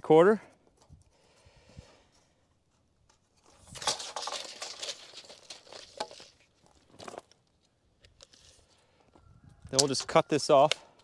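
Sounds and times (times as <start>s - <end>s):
crinkly scraping and rustling: 0.6s - 9.1s.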